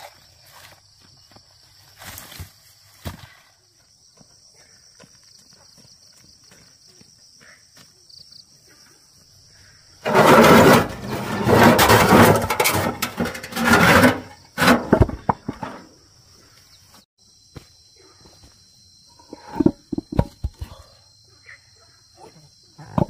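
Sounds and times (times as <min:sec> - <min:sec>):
stone slabs scraping out of wheelbarrow: 0:10.0 - 0:15.9, 0:19.2 - 0:20.6.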